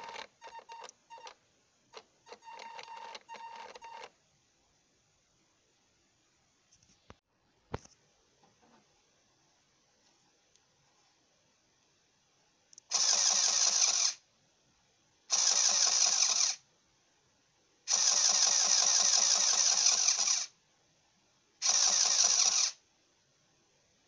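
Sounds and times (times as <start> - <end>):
small electric pump running: 12.9 - 14.2, 15.3 - 16.6, 17.9 - 20.5, 21.6 - 22.8.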